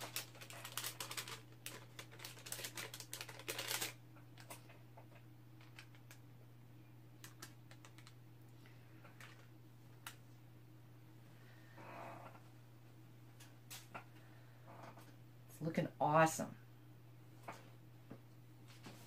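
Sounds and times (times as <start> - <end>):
plastic and paper crinkling: 0.0 - 4.7, 5.6 - 6.2, 7.2 - 8.2, 9.2 - 10.2
steady low hum: 0.0 - 19.0.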